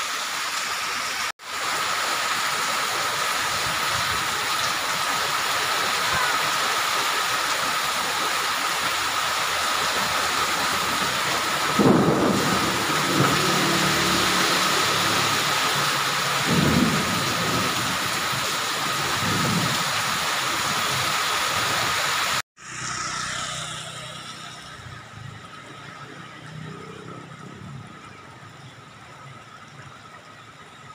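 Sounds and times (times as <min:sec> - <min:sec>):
heavy rain on pavement: 0:00.0 - 0:22.4.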